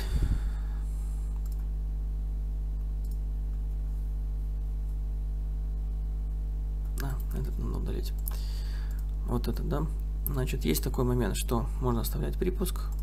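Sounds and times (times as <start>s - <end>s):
electrical mains hum: 0.0s - 13.0s
computer mouse clicks: 1.4s - 1.7s, 3.0s - 3.2s.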